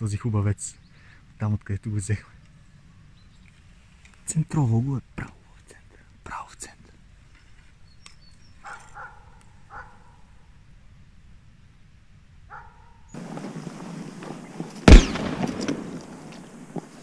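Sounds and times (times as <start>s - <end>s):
faint dogs barking: 8.6s - 10.5s, 12.5s - 13.1s.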